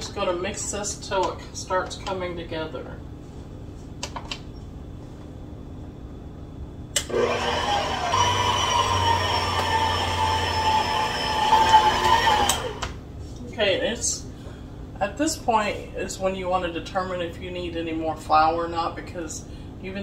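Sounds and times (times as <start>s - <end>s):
stand mixer motor whining: 7.0s - 13.0s.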